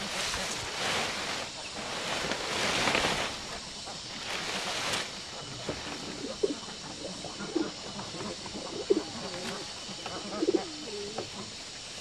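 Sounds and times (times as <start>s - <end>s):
dry palm leaves rustling: 0.0s - 6.6s
dove cooing: 5.4s - 11.6s.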